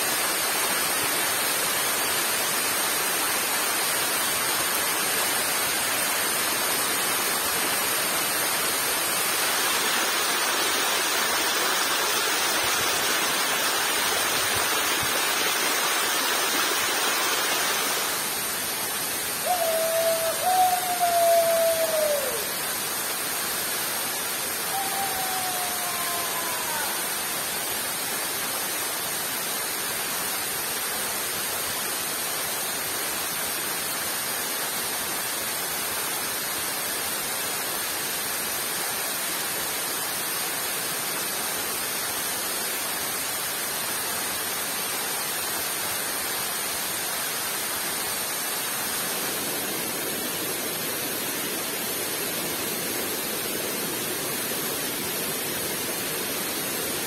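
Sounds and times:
heavy rain: 0:00.0 - 0:57.0
waterfall rushing: 0:00.0 - 0:57.0
whistled calls: 0:19.4 - 0:22.6, 0:24.6 - 0:27.1.

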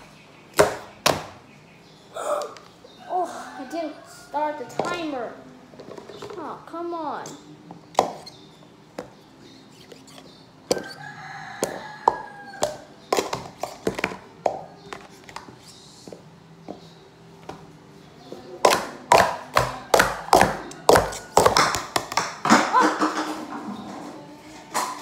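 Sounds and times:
plastic cups clacking: 0:18.6 - 0:23.9.

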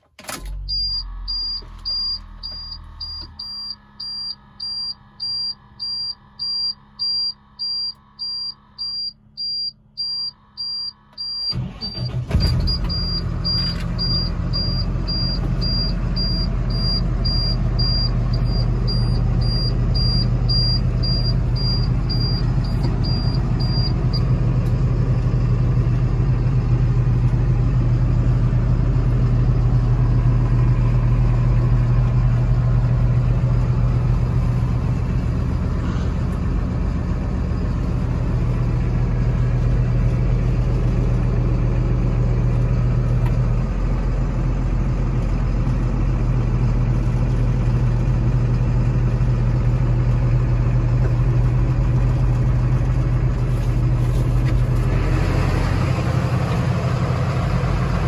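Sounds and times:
diesel engine cranking and idling: 0:00.0 - 0:58.0
warning chime beeping: 0:00.6 - 0:24.2.

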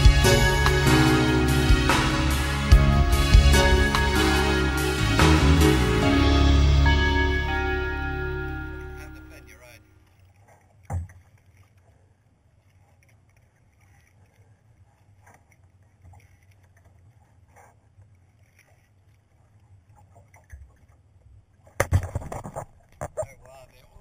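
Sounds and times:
water lapping against kayak hull: 0:10.0 - 0:24.0.

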